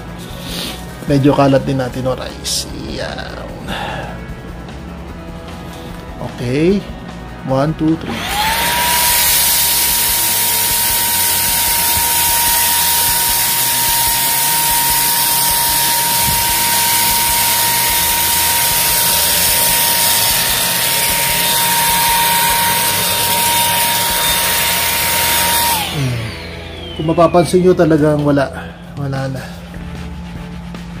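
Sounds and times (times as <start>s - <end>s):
stick vacuum running: 8.0s - 31.0s.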